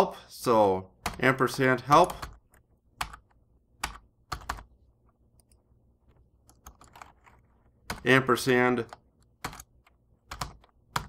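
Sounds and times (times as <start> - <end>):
keyboard keystrokes: 6.4 - 8.1, 8.8 - 11.0.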